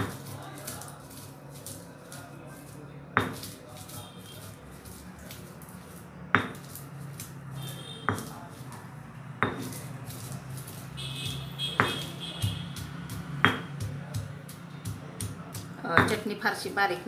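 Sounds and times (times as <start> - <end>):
stone pestle pounding in mortar: 0.0 - 17.0.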